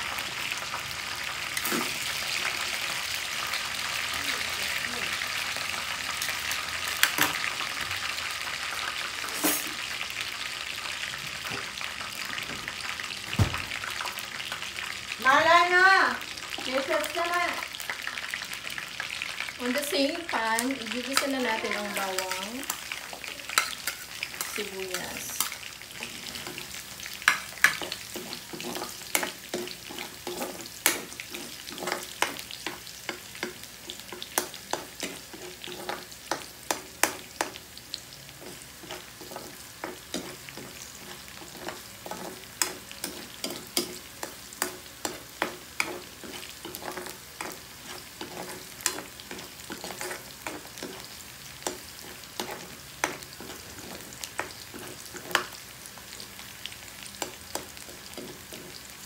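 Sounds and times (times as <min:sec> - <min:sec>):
garlic and onion sizzling in oil: 0:00.0 - 0:59.0
spatula scraping a wok: 0:09.2 - 0:09.9, 0:21.2 - 0:37.6, 0:38.4 - 0:55.6, 0:57.2 - 0:59.0.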